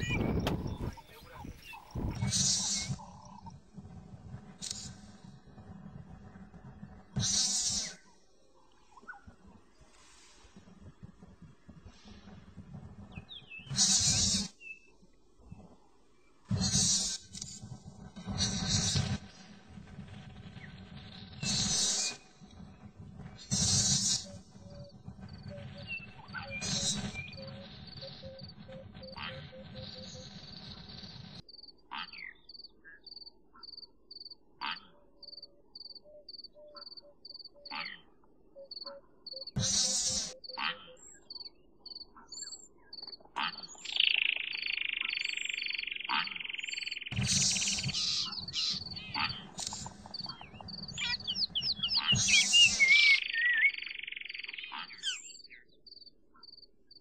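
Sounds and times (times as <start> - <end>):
louder calls: 43.4 - 53.8.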